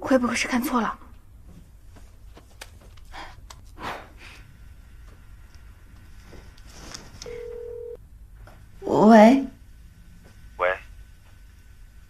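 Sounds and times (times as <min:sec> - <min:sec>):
rustling: 0:06.0 - 0:07.9
phone ringback tone: 0:07.3 - 0:08.0.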